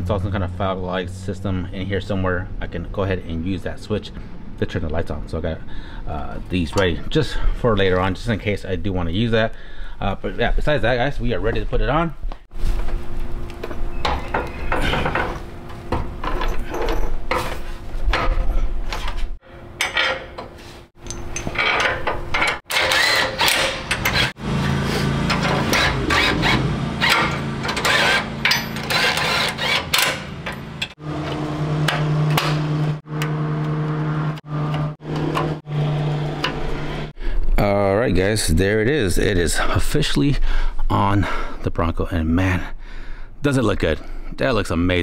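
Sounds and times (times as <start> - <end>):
metal and tools clanking: 13.6 - 32.7
power tool running: 22.7 - 37.2.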